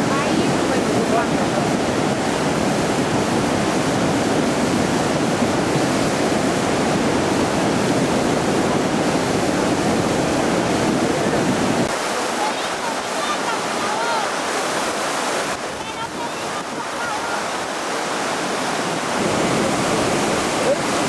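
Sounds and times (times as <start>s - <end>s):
floodwater rushing: 0.0s - 21.0s.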